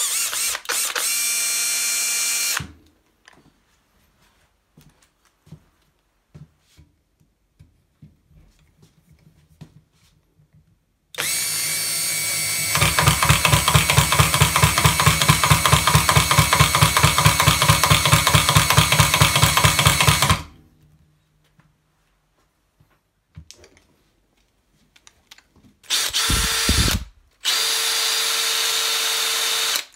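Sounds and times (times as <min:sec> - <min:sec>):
drill motor whirring: 0:00.0 - 0:02.7, 0:11.2 - 0:20.5, 0:25.8 - 0:29.9
impact attachment hammering rapidly: 0:12.8 - 0:20.5, 0:26.0 - 0:27.1.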